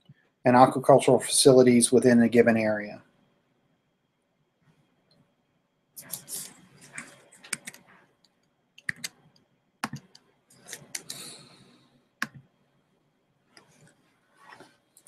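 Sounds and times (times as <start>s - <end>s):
mouse and keyboard clicks: 6.0s - 7.8s, 8.8s - 9.2s, 9.8s - 11.3s.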